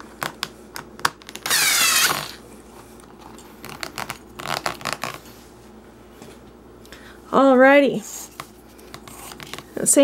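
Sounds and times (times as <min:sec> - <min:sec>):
leather straps creaking: 0:01.3 - 0:02.4, 0:03.6 - 0:05.3.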